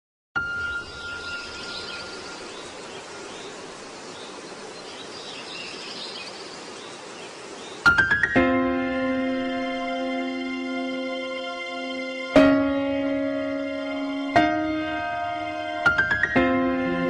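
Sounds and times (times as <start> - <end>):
music: 0.4 - 2.4, 7.9 - 17.0
steady background hiss: 0.4 - 17.0.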